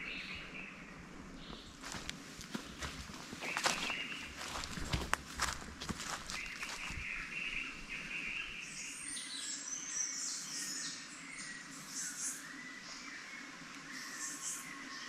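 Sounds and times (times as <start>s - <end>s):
footsteps: 1.5s - 7.0s
birds chirping and calling: 1.5s - 12.5s.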